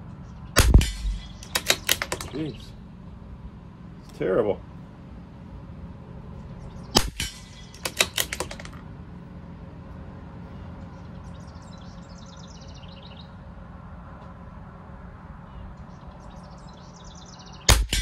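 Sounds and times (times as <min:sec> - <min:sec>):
rifle bolt clicks: 0:00.6 - 0:02.4, 0:07.0 - 0:08.8
rifle shot: 0:00.6 - 0:02.4, 0:07.0 - 0:08.7, 0:17.7 - 0:18.0.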